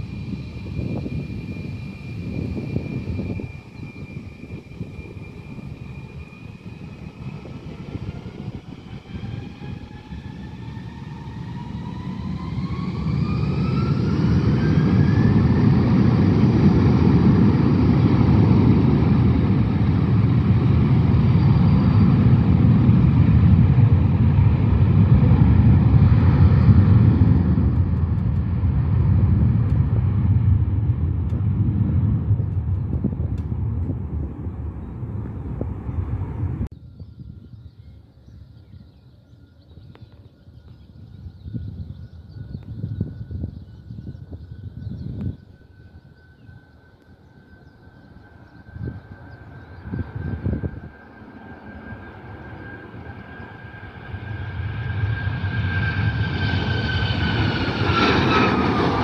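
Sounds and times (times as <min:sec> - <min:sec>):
jet engines spooling up: 0:00.0 - 0:36.7, 0:39.6 - 0:59.0
loud steady jet roar: 0:00.0 - 0:59.0.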